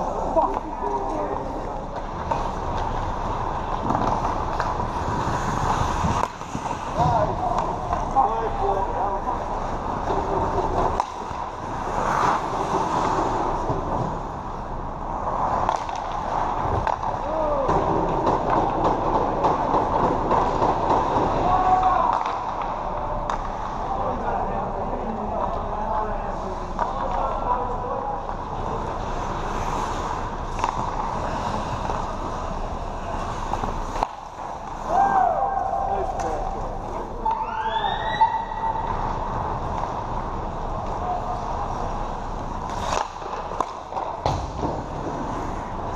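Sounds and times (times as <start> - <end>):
faint hockey clacks: 0.0 - 8.3, 15.4 - 21.5, 22.1 - 23.9, 26.4 - 27.4, 28.2 - 35.1, 38.8 - 45.7
skates scraping on ice: 0.0 - 25.6, 26.3 - 45.9
echoing rink hum: 0.0 - 45.9.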